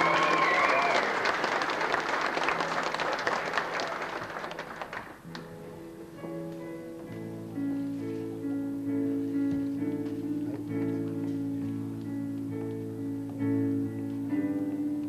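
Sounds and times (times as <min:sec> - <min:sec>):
audience applauding: 0:00.0 - 0:05.3
instrumental music: 0:04.9 - 0:15.0.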